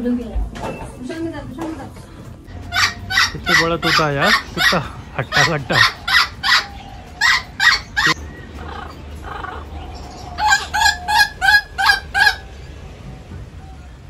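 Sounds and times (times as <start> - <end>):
parrot squawking: 2.5 - 12.9.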